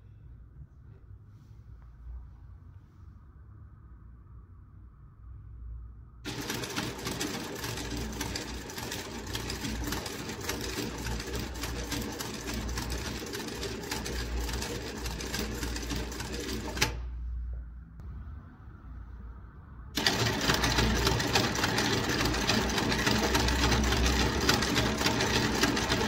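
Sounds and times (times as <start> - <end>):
sewing machine stitching: 6.3 - 17.1, 20.0 - 26.0
low hum: 14.8 - 21.0.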